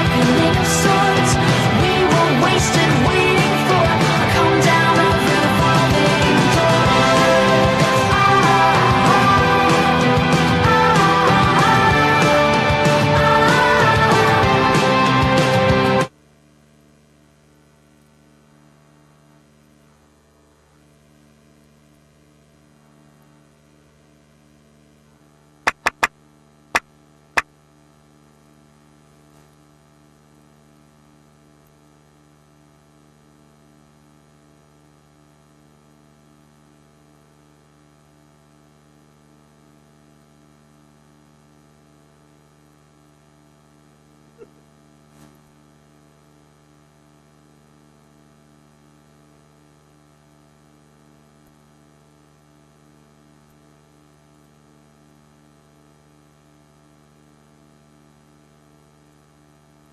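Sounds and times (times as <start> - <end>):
electrical mains hum: 0.0 - 59.9
sharp clicks: 25.7 - 26.1.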